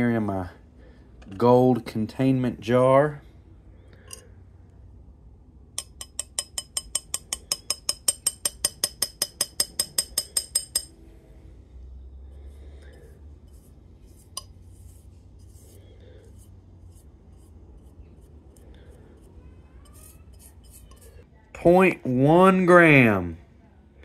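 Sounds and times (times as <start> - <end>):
glass dish clinking on glass jar: 5.8 - 11.0.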